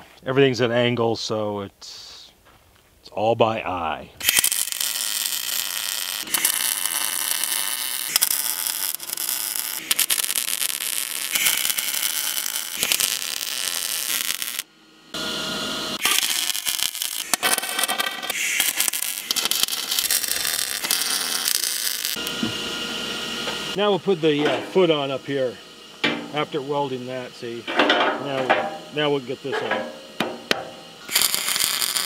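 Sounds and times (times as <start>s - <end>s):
welder arc crackling: 4.2s - 25.5s, 30.2s - 32.0s.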